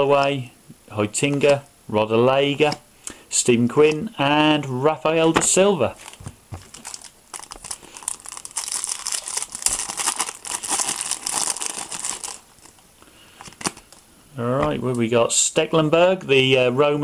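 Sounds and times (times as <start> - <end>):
foil wrapper crinkling and tearing: 5.9 - 12.8, 13.4 - 14.0.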